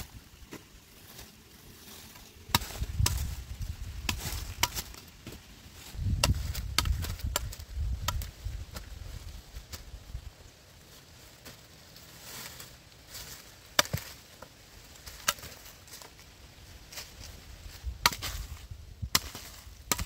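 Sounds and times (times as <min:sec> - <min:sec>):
hoe chopping into soil: 0:02.4 - 0:03.4, 0:04.0 - 0:05.4, 0:06.1 - 0:08.9, 0:13.8 - 0:14.2, 0:18.0 - 0:20.0.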